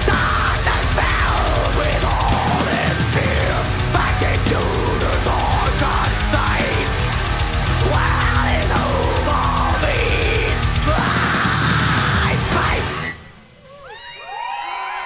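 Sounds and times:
death metal band playing live: 0.0s - 13.4s
crowd cheering and whooping: 13.4s - 15.0s.

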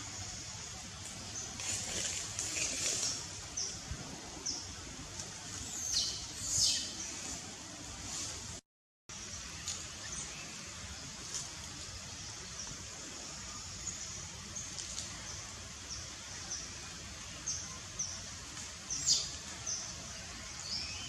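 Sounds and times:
low outdoor background noise: 0.0s - 21.0s
small birds chirping: 5.6s - 7.5s, 12.1s - 21.0s.

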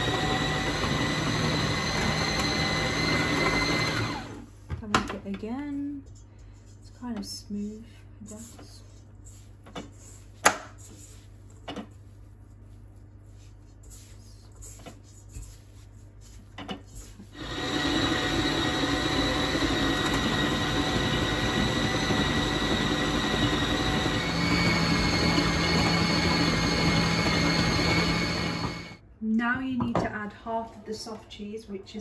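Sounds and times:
stand mixer motor whine: 0.0s - 4.4s, 17.4s - 29.0s.

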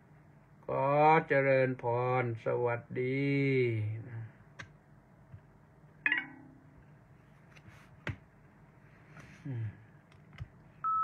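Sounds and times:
man's low hum: 9.3s - 10.0s.

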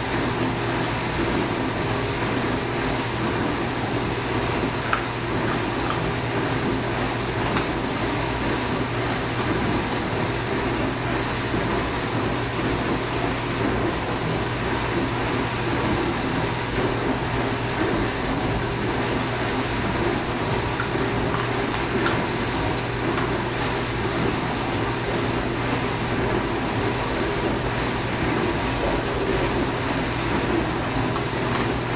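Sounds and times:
dishwasher churning wash noise: 0.0s - 31.9s
dishwasher hum: 0.0s - 31.9s.

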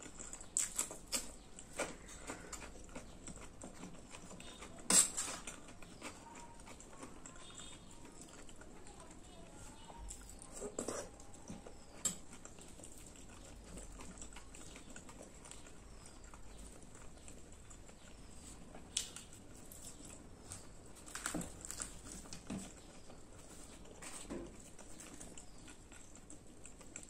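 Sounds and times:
chewing and mouth noises: 0.0s - 27.0s
fried bread tearing: 18.9s - 22.8s.

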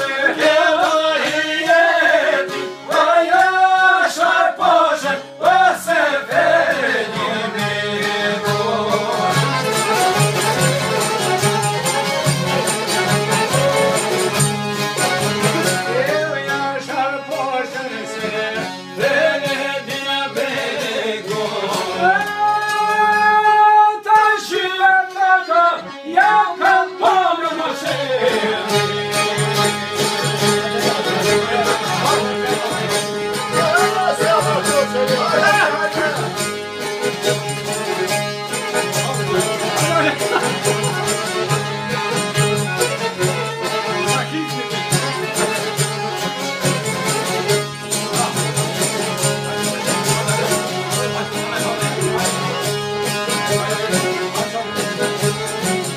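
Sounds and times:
men singing together: 0.0s - 9.6s, 16.0s - 29.0s
strummed lutes: 0.0s - 55.9s
violin: 0.0s - 55.9s.

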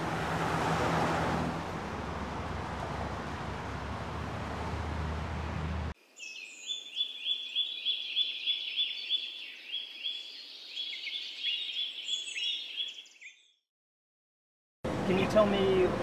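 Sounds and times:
road traffic: 0.0s - 6.0s, 14.8s - 16.0s
songbird singing repeated notes: 6.1s - 13.6s.

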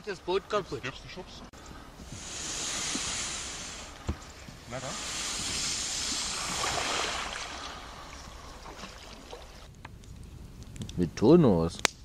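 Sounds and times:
kayak hull scraping into river: 2.0s - 9.7s.

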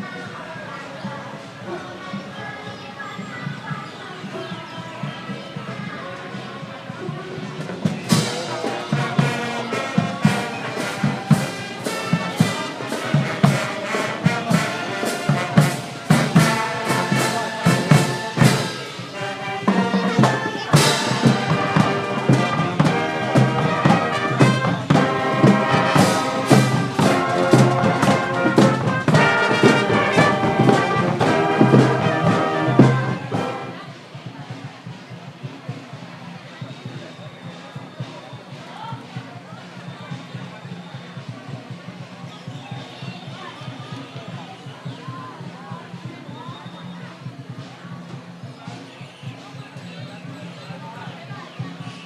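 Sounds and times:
marching band playing: 1.4s - 52.0s
bass drum beat: 7.4s - 33.7s.

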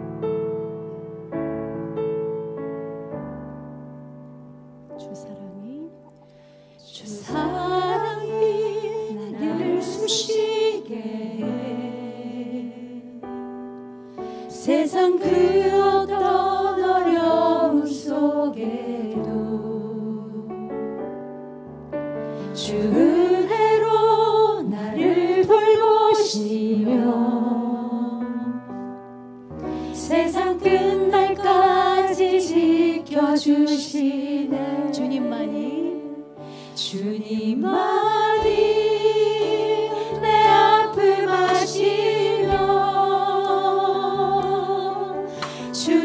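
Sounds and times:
woman singing into a microphone: 6.8s - 12.3s.

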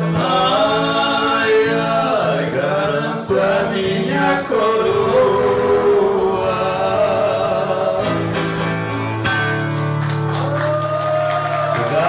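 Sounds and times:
men singing: 0.0s - 8.6s
guitars strumming: 0.0s - 10.3s.

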